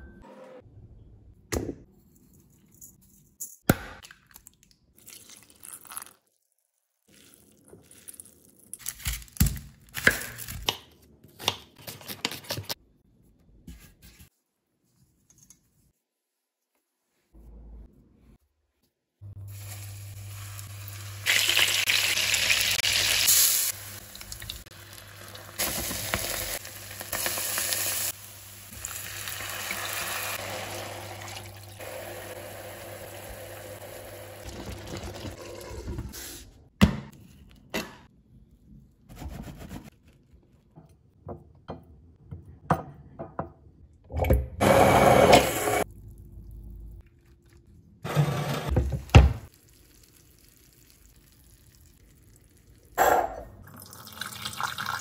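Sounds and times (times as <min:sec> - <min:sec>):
sizzling and bubbling in a frying pan: 0:48.8 - 0:52.9.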